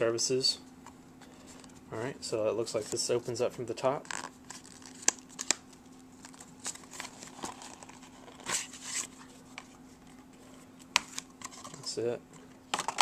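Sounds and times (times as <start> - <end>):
card and paper rustling: 6.2 - 10.2.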